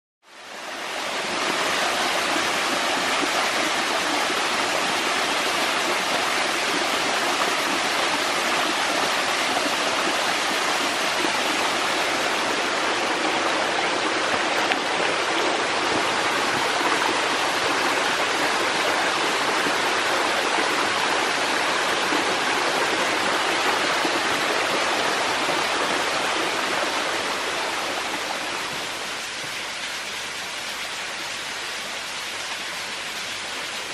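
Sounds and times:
stream water rushing over rocks: 0:00.3 - 0:33.9.

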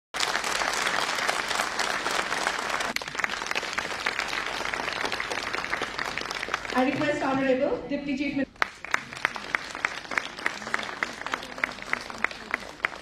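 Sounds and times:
large audience applauding: 0:00.2 - 0:07.4, 0:08.5 - 0:13.0.

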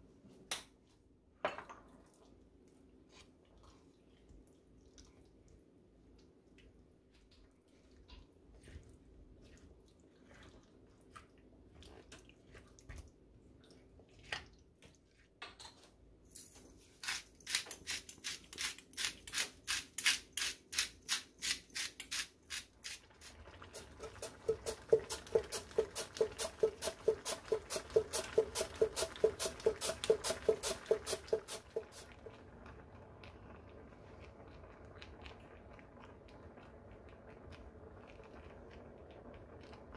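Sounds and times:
rhythmic kitchen strokes: 0:16.8 - 0:32.3.

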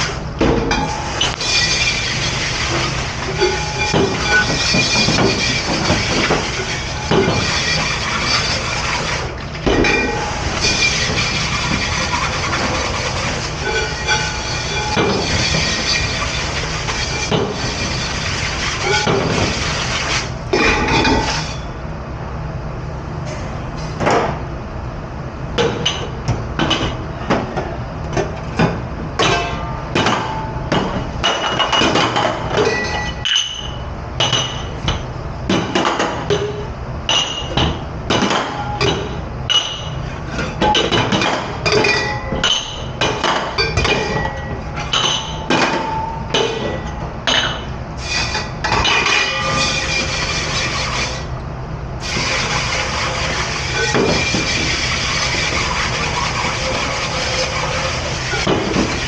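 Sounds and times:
steady low hum: 0:00.0 - 0:31.7
dishes and pans clattering: 0:00.4 - 0:17.9, 0:18.7 - 0:21.5, 0:28.2 - 0:47.7, 0:48.3 - 0:51.0, 0:52.1 - 0:59.0.

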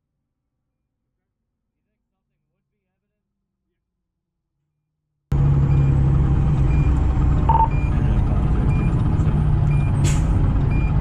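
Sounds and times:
diesel engine running: 0:05.3 - 0:11.0
short high beeps: 0:07.5 - 0:07.9.

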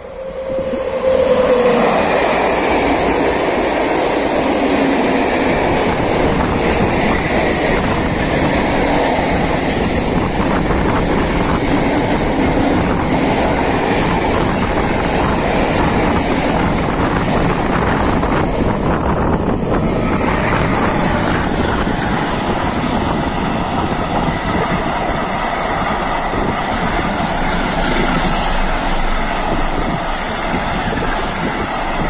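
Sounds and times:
train wheels rumbling on rails: 0:00.0 - 0:32.0
clickety-clack over rail joints: 0:02.6 - 0:32.0.

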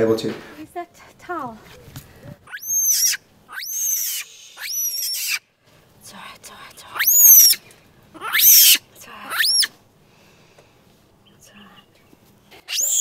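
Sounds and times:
monkey screaming: 0:02.5 - 0:05.4, 0:07.0 - 0:07.6, 0:08.2 - 0:09.7, 0:12.7 - 0:13.0.

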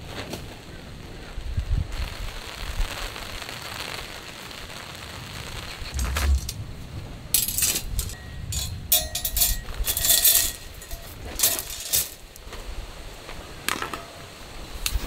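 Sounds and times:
wire grill frame clinking: 0:07.3 - 0:12.4.

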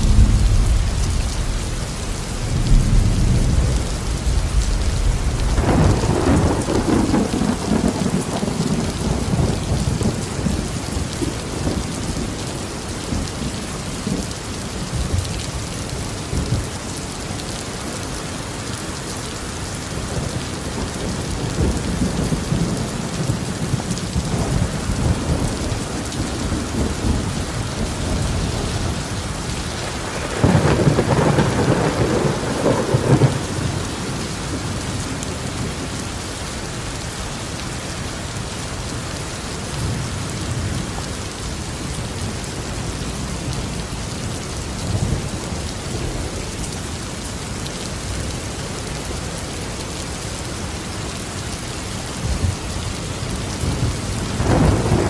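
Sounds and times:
thunder clap: 0:00.0 - 0:10.2, 0:53.6 - 0:55.0
rolling thunder: 0:00.0 - 0:12.4, 0:20.1 - 0:35.9, 0:53.6 - 0:55.0
steady rain: 0:00.0 - 0:55.0.

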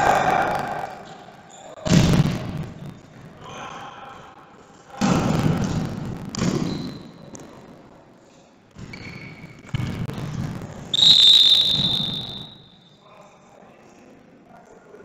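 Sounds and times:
referee's whistle blast: 0:10.9 - 0:12.9
faint short whistle tone: 0:11.0 - 0:13.0.

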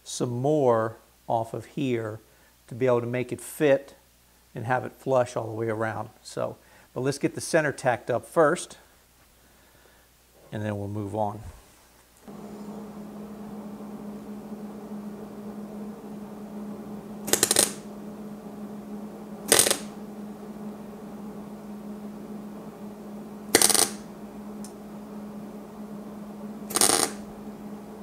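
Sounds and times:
steady low hum: 0:12.2 - 0:28.0
welder crackling buzz: 0:12.2 - 0:28.0.

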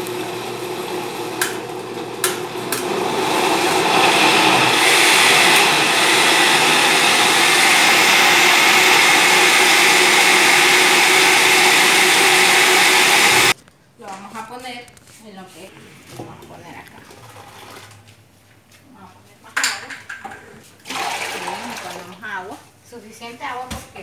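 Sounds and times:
blender running: 0:00.0 - 0:13.6, 0:20.8 - 0:22.1.

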